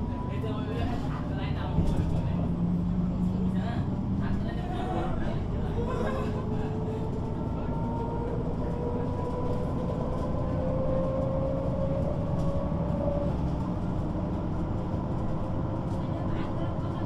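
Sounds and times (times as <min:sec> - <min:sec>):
bus engine rumbling: 0:00.0 - 0:17.0.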